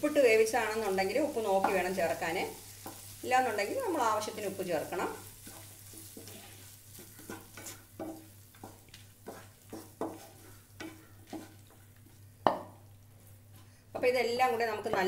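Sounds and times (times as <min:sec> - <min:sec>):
spatula knocking pan: 0:00.7 - 0:11.8, 0:12.4 - 0:12.8, 0:14.0 - 0:15.0
spatula scraping frying pan: 0:00.7 - 0:12.2.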